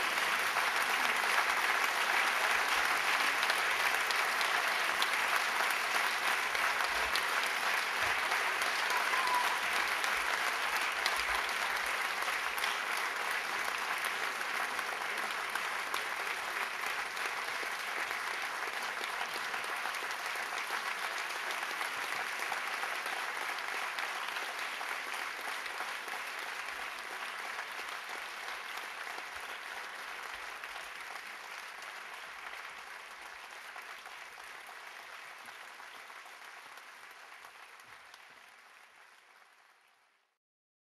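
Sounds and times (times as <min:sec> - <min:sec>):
audience applauding: 0:00.0 - 0:40.4.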